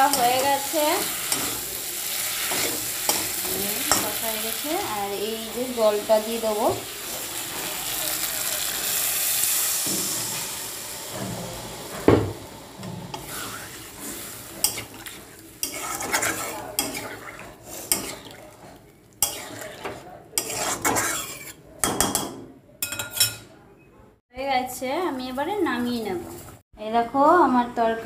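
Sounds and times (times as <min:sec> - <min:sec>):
spoon stirring and scraping pan: 0:00.0 - 0:08.0, 0:12.8 - 0:23.5
water sizzling in hot pan: 0:00.0 - 0:18.4.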